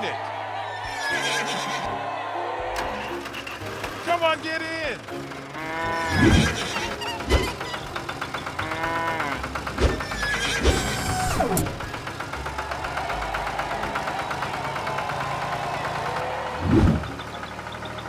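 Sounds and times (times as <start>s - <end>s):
cartoon farm animals calling: 0.8s - 1.9s, 5.5s - 12.2s
horse whinnying: 0.8s - 2.0s, 5.6s - 7.8s, 8.6s - 11.7s
tractor engine running: 2.6s - 18.0s.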